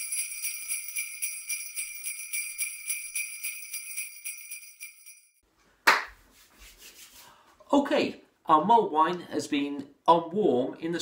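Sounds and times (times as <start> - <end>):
jingle bells shaken: 0.0 - 5.4.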